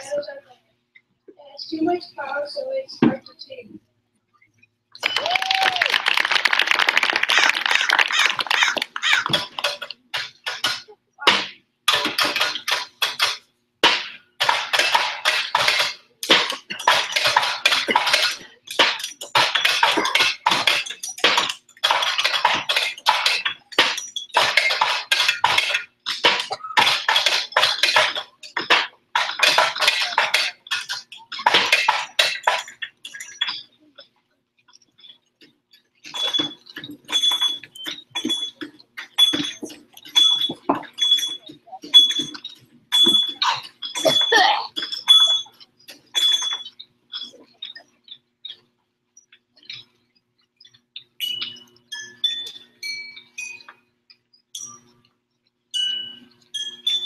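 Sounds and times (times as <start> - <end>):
metallic clattering and rattling: 7.4 - 34.1, 34.7 - 50.0.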